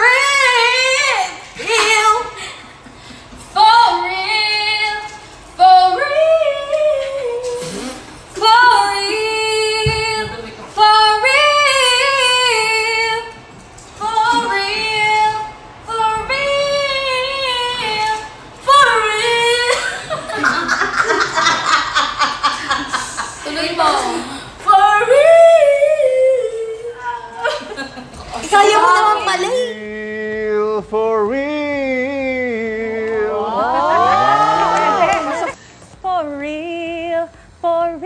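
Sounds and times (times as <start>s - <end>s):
young women singing unaccompanied: 0.0s - 2.4s, 3.5s - 7.6s, 8.4s - 13.4s, 14.0s - 20.4s, 23.4s - 27.8s.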